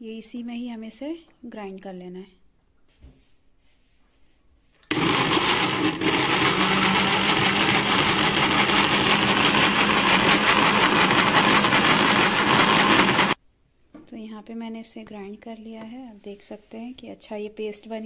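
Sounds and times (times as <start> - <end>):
mixer grinder running: 4.9 - 13.4.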